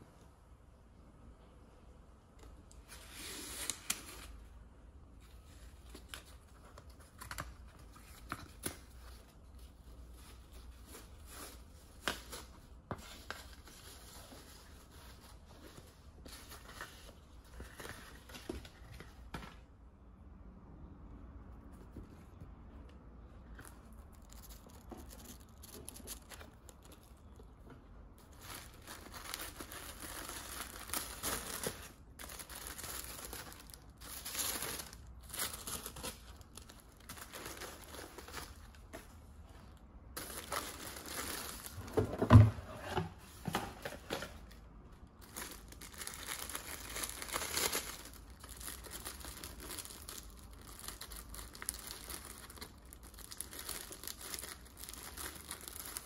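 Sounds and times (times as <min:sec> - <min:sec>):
tissue paper rustling: 0:28.2 - 0:39.1.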